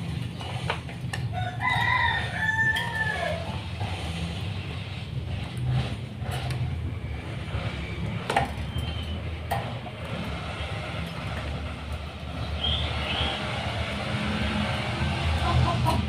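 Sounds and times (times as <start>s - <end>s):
high bird chirps: 12.5s - 13.4s.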